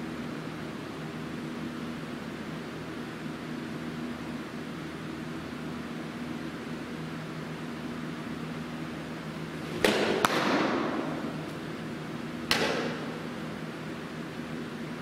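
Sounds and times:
ball smacking into leather mitt: 9.7 - 11.6, 12.5 - 13.1.

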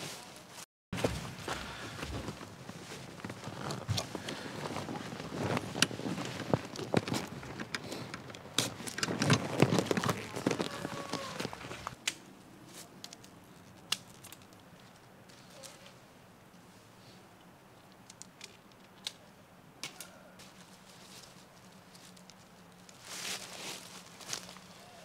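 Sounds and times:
waterproof fabric rustling: 2.1 - 7.7, 8.7 - 12.0.

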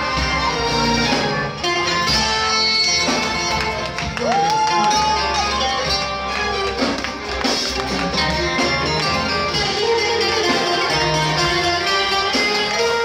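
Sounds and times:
bass line: 0.0 - 13.0
plucked strings: 5.0 - 13.0.

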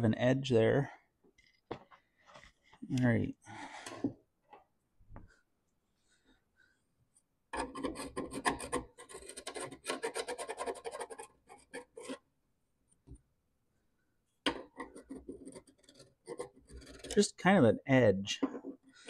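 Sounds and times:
hand file rasping on metal: 7.6 - 12.2, 14.9 - 17.2.

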